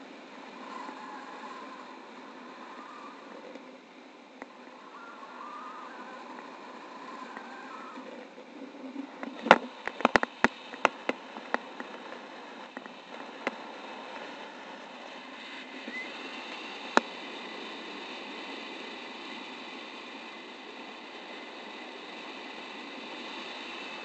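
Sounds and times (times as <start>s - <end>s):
airflow noise on microphone: 0.0s - 24.0s.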